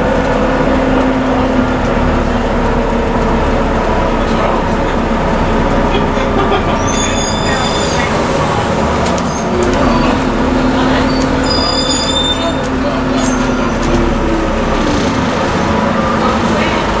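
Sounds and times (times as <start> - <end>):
bus engine running with whine: 0.0 - 17.0
brief high-pitched squeal: 6.8 - 8.1, 11.1 - 12.6.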